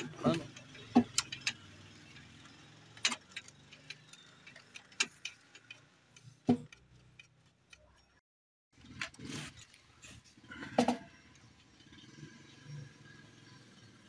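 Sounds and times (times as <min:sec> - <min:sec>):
plastic and metal parts clicking: 0:00.0 - 0:01.7, 0:02.9 - 0:07.8.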